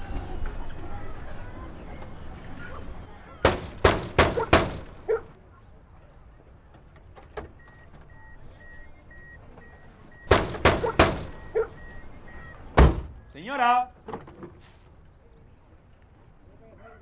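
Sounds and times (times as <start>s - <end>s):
knocking on wooden gate: 3.4s - 5.2s, 10.3s - 11.4s
door-open warning chime beeping: 7.6s - 12.7s
car door unlatching: 10.3s - 11.8s, 12.7s - 13.2s.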